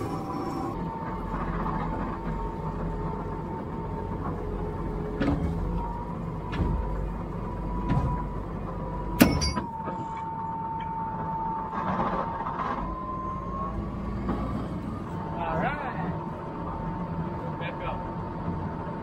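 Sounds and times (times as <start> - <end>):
tractor engine whining: 0.0 - 19.0
sharp metallic knocks: 9.2 - 9.8.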